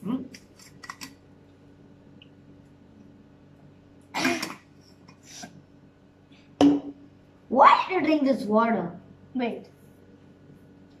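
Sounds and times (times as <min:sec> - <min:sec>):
quiet room hum: 0:00.0 - 0:11.0
person hiccuping: 0:04.2 - 0:04.6.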